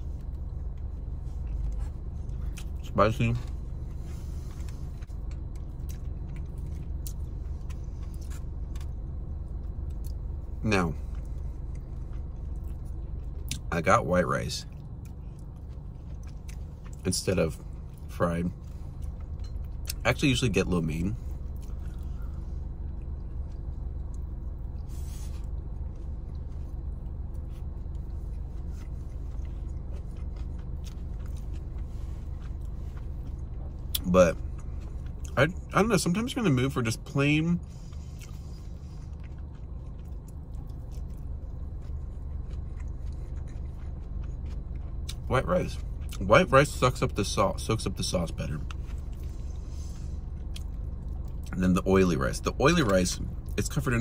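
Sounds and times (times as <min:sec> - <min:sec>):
low hum inside car: 0:00.0 - 0:54.0
wet chewing clicks: 0:00.2 - 0:13.7, 0:14.6 - 0:20.1, 0:25.4 - 0:35.7, 0:37.6 - 0:46.6.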